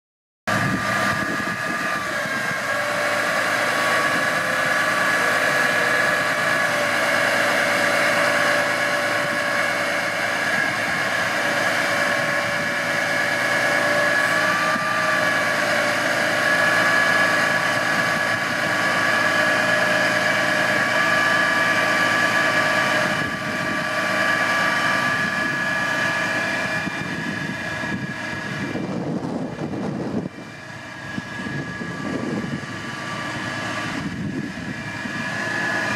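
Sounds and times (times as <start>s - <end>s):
hydraulic pump whine: 0.5s - 35.9s
truck engine running: 0.5s - 35.9s.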